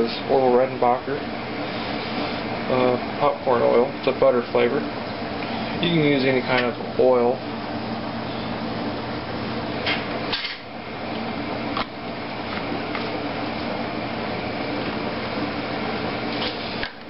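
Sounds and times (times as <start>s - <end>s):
fan hum and hiss: 0.0s - 17.0s.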